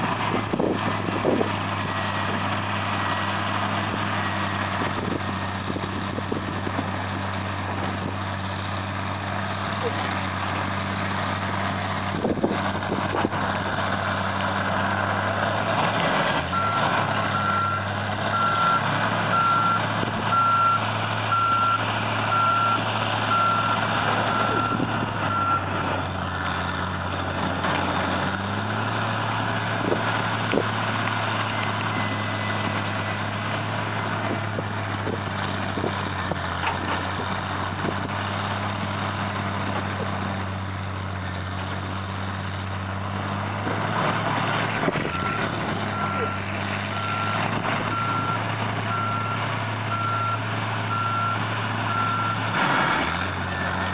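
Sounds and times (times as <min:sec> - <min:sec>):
heavy diesel machinery running: 0:00.0 - 0:53.9
reversing alarm beeping: 0:16.5 - 0:25.7.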